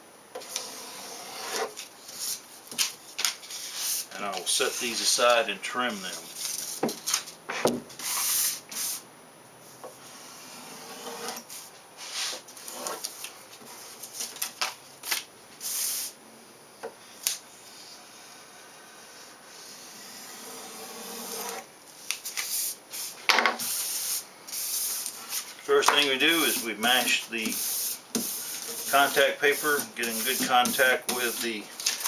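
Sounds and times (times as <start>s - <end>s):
paper rustling: 12.0s - 15.3s, 24.5s - 32.0s
craft knife slicing paper: 22.2s - 32.0s.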